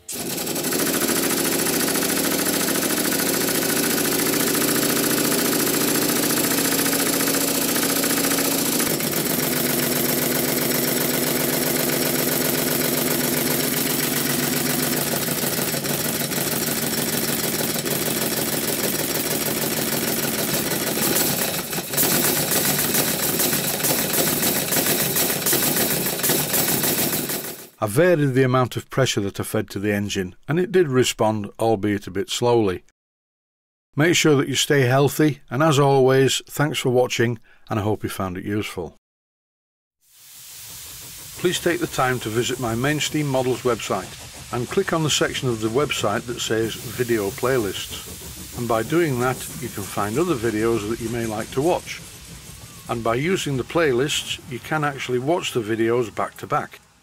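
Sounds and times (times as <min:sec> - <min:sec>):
steam hiss: 0:00.0 - 0:27.6, 0:40.0 - 0:57.0
steam engine exhaust beat: 0:00.0 - 0:27.7, 0:40.0 - 0:57.0.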